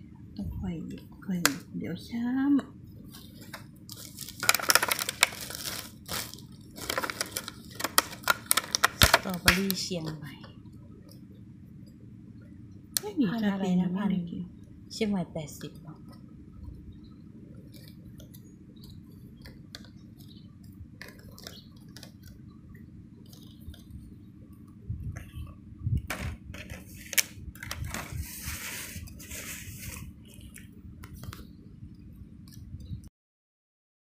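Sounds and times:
steady low hum: 0:00.0 - 0:33.1.

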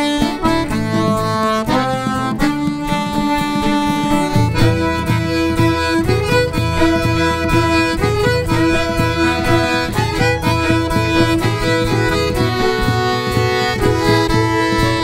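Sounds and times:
fiddle playing: 0:00.0 - 0:15.0
guitar: 0:00.0 - 0:15.0
steady beat: 0:00.0 - 0:15.0.

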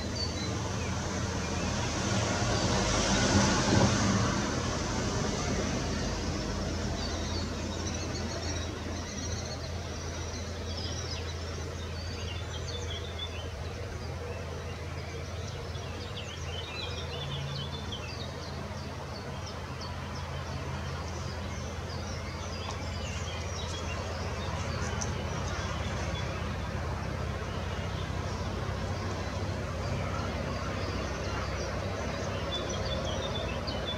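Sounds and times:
small songbirds chirping: 0:00.0 - 0:03.0, 0:04.6 - 0:33.9.

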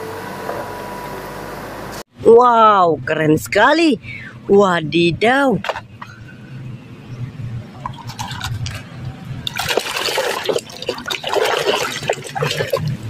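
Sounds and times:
water sloshing in a tub: 0:09.4 - 0:13.0.

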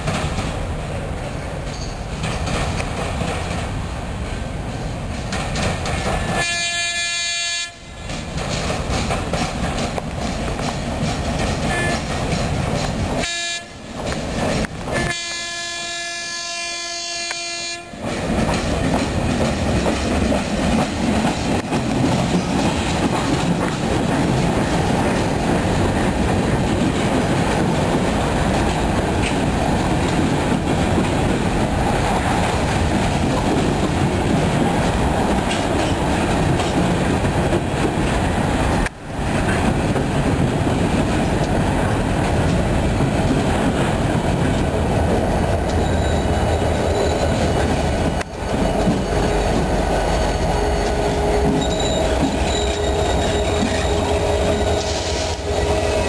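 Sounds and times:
freight train wheels rumbling: 0:00.0 - 0:56.0
train horn blowing: 0:06.3 - 0:08.0, 0:11.7 - 0:12.1, 0:13.2 - 0:13.8, 0:14.9 - 0:18.0, 0:49.0 - 0:56.0.

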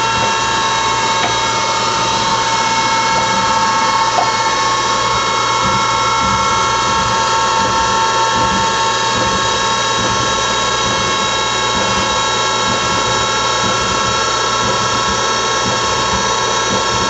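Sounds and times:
lathe mechanical whine: 0:00.0 - 0:17.0
low hum: 0:00.0 - 0:17.0.

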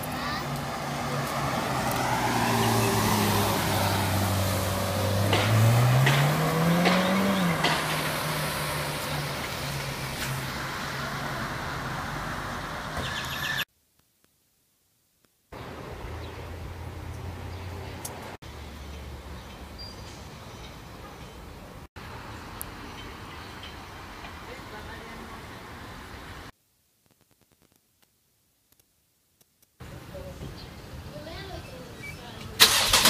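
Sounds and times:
car engine revving: 0:00.5 - 0:13.0.

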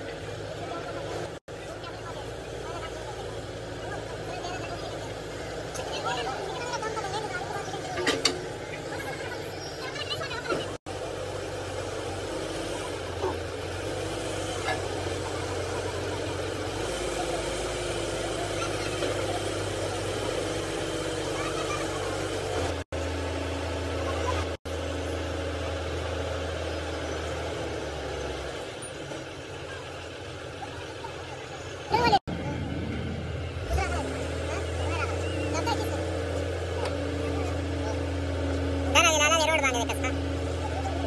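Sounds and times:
faint voices: 0:00.0 - 0:22.8, 0:28.5 - 0:41.0
engine droning: 0:00.0 - 0:41.0
workshop noise: 0:00.0 - 0:41.0.

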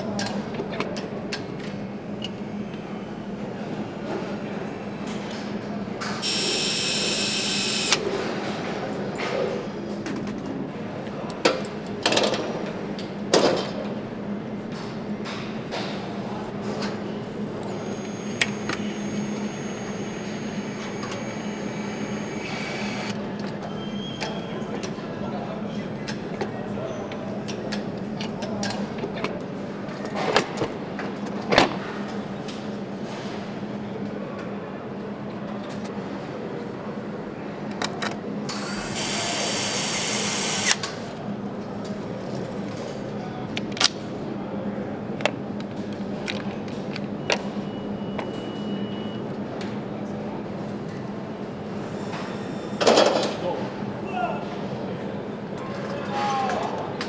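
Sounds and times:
mechanical hum: 0:00.0 - 0:57.0
power screwdriver whine: 0:06.2 - 0:08.0, 0:17.9 - 0:23.1, 0:38.6 - 0:40.8.

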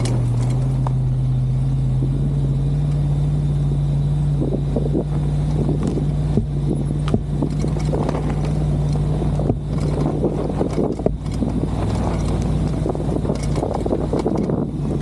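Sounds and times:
knocks and crackles: 0:00.0 - 0:01.0, 0:05.0 - 0:15.0
engine running under load: 0:00.0 - 0:15.0
plow blade pushing through snow: 0:00.0 - 0:15.0
wind buffeting microphone: 0:04.2 - 0:15.0.

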